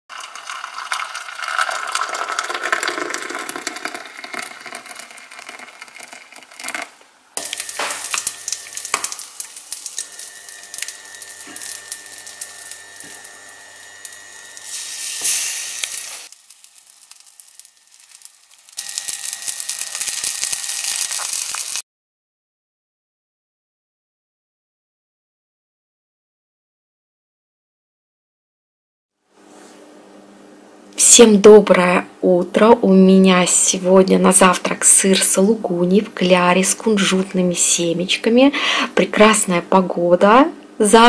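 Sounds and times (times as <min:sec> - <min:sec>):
cheese sizzling in hot oil: 0:00.1 - 0:21.8
hot water pouring into cup: 0:00.1 - 0:21.8.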